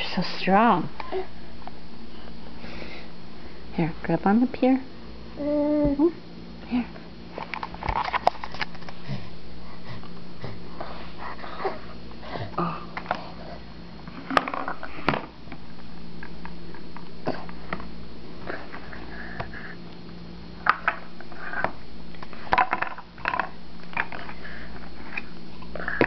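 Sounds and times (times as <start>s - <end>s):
steady low hum: 0.0s - 26.0s
baby vocalizing: 5.4s - 6.1s.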